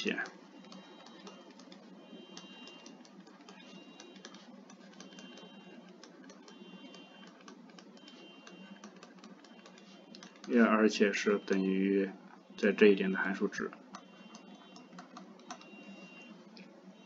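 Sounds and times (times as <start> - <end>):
faint high whine: 0.0 - 17.0
stylus tapping on tablet screen: 0.2 - 10.6.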